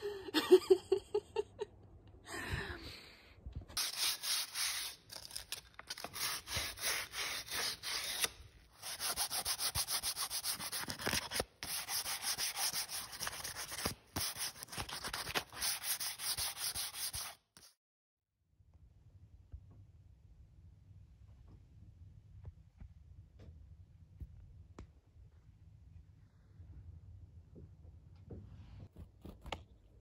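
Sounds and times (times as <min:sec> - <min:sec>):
hand sanding plywood: 0:03.8 - 0:05.0, 0:06.2 - 0:17.4.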